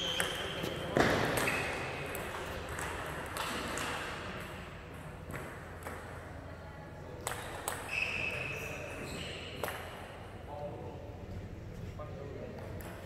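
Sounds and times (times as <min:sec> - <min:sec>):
table tennis ball hits: 0:00.2 - 0:06.1.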